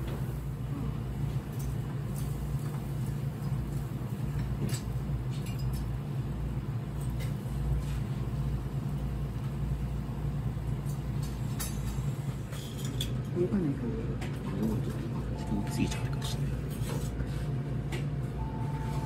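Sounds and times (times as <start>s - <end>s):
steady low hum: 0.0s - 19.0s
seafood sizzling on grill: 1.3s - 12.9s.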